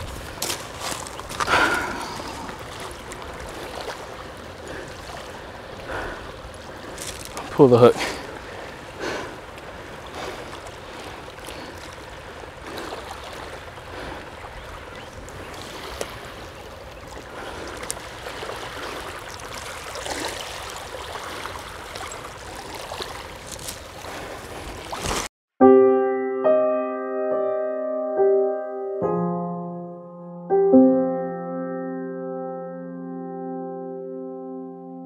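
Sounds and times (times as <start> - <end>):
small splashes: 0.0 - 25.3
small waves lapping on gravel: 0.0 - 25.3.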